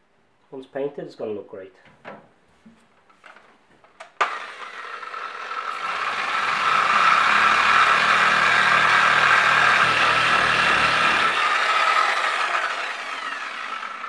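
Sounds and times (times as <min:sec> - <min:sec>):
electric sander running: 0:04.2 - 0:14.0.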